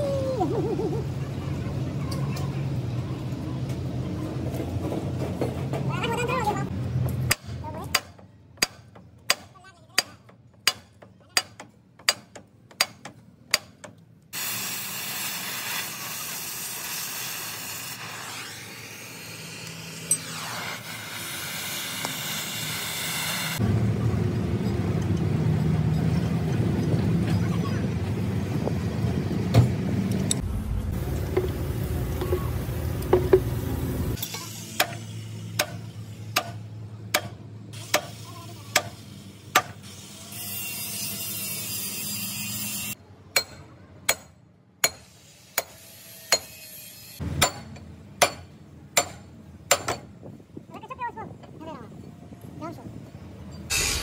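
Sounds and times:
sledgehammer striking steel: 47.2s - 50.1s.

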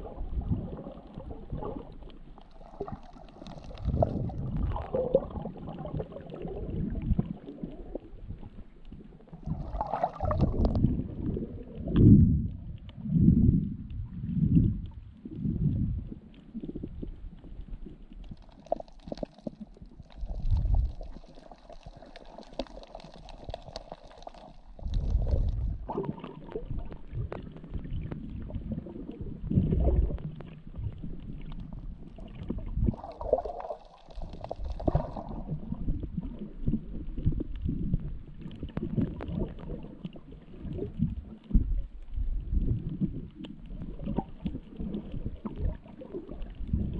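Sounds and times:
underwater rumbling and sloshing: 0.0s - 46.9s.

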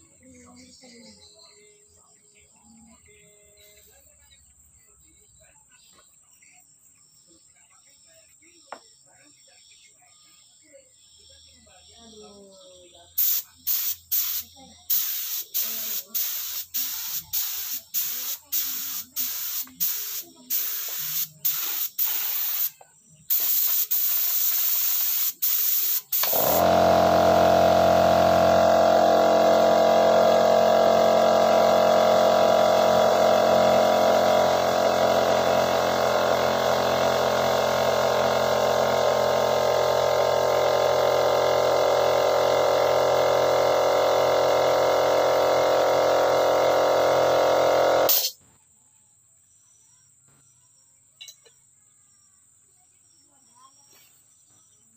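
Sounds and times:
spray gun hissing: 13.2s - 48.3s
loud steady hum: 26.2s - 48.3s.

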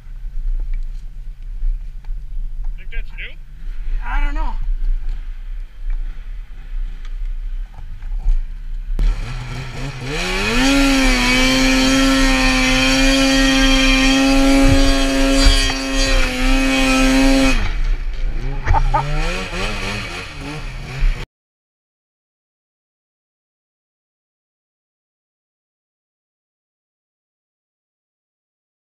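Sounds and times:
snowmobile engine revving: 9.0s - 21.2s.

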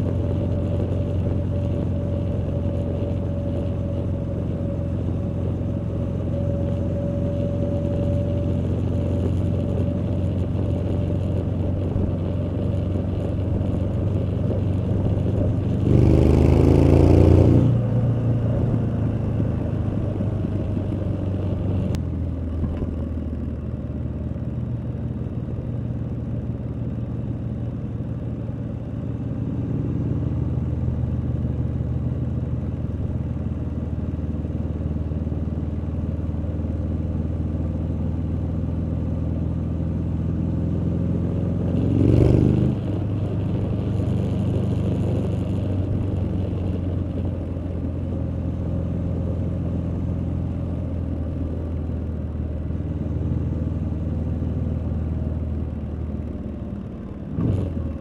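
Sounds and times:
motorcycle engine revving: 0.0s - 22.0s, 36.9s - 51.0s
motorcycle exhaust at low revs: 0.0s - 58.0s.

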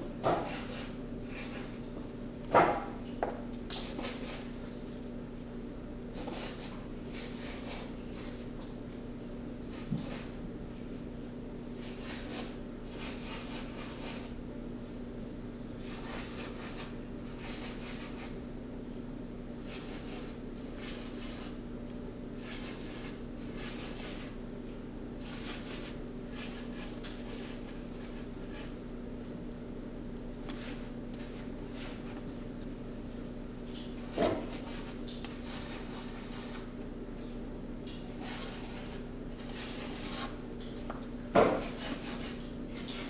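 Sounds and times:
steady low hum: 0.0s - 43.0s
paintbrush scratching on cardboard: 0.5s - 1.8s, 6.2s - 8.5s, 11.8s - 14.4s, 15.8s - 18.4s, 19.6s - 21.6s, 22.4s - 24.4s, 25.2s - 28.8s, 30.5s - 32.5s, 34.1s - 36.7s, 38.2s - 40.4s, 41.6s - 43.0s.

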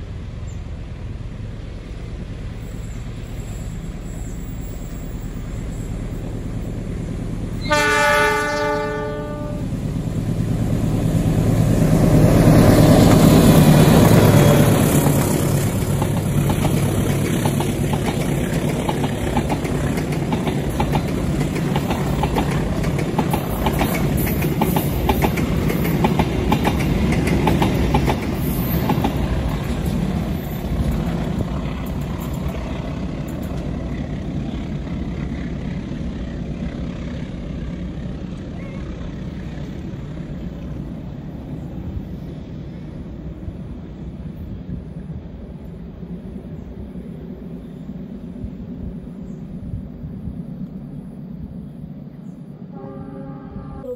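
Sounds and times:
locomotive engine rumble: 0.0s - 53.9s
train horn blast: 7.6s - 9.8s, 52.7s - 53.9s
train wheels clattering over rail joints: 12.9s - 35.8s.

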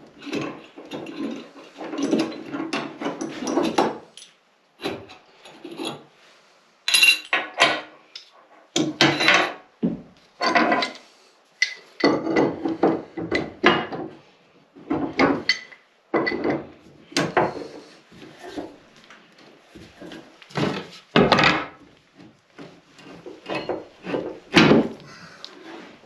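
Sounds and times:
tools knocking and scraping: 0.0s - 6.1s, 6.9s - 14.2s, 14.8s - 26.0s.

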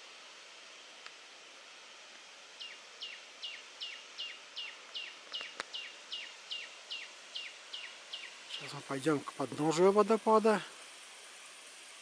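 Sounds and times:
faint hiss: 0.0s - 12.0s
bird chirping: 2.6s - 8.9s.

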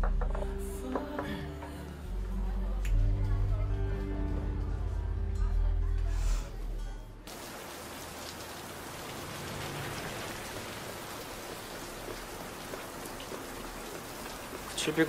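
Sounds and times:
steady rain pouring: 7.3s - 15.0s.

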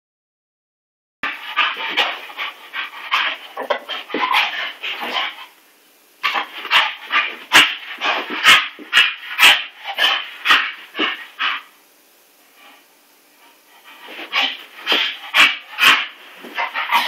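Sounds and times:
dog making short rapid vocal noises: 14.0s - 17.0s.

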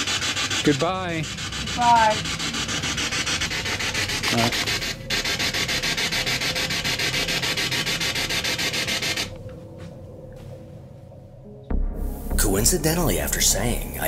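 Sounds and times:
pulsing radio static: 0.0s - 2.3s, 3.2s - 9.4s.

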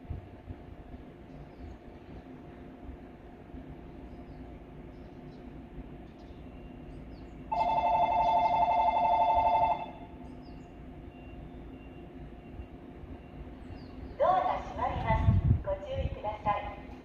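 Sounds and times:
electric train humming: 0.0s - 17.0s
electric bell ringing: 7.5s - 10.0s.

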